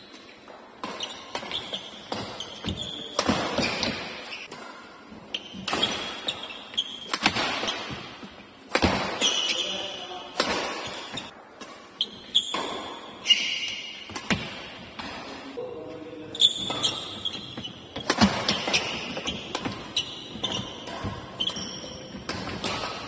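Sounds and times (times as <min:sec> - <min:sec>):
shoes squeaking on court floor: 0:00.0 - 0:23.0
rackets striking shuttlecock: 0:00.8 - 0:15.4, 0:16.6 - 0:23.0.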